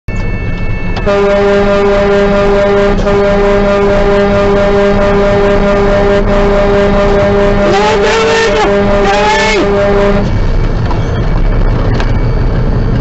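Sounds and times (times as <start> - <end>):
truck horn long blast: 1.0 - 10.6.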